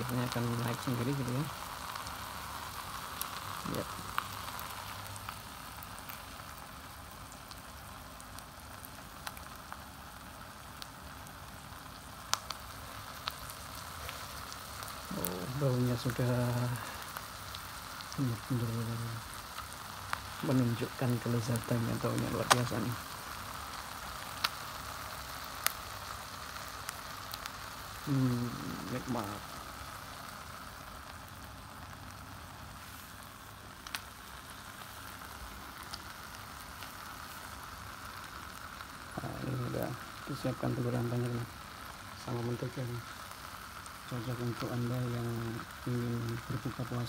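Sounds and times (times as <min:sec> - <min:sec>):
egg batter sizzling: 0:00.0 - 0:47.0
sharp pops: 0:22.2 - 0:23.0.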